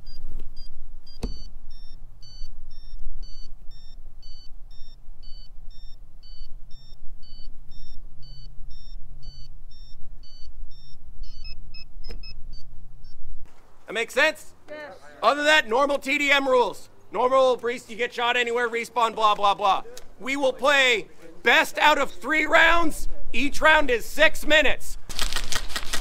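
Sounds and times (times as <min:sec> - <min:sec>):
low steady rumble: 0:00.0 - 0:13.8.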